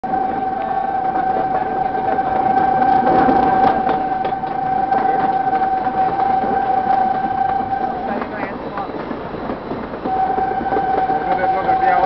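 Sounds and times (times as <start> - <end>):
train horn blast: 0.0 - 8.4, 10.0 - 12.0
train coaches rattling on track: 0.0 - 12.0.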